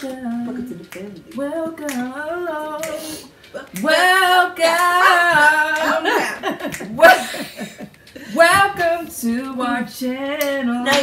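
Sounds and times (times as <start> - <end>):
women singing: 0.0 - 11.0
women laughing: 4.9 - 8.4.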